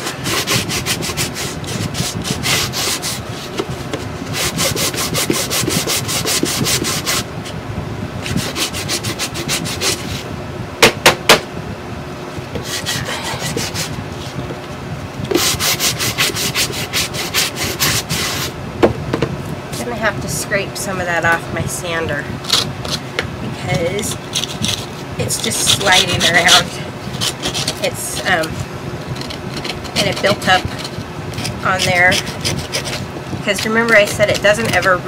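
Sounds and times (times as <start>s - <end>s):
sanding block rubbing on wood: 0.0s - 3.6s, 4.3s - 7.2s, 8.3s - 10.2s, 12.6s - 14.0s, 15.3s - 18.5s, 24.3s - 28.5s, 29.2s - 35.0s.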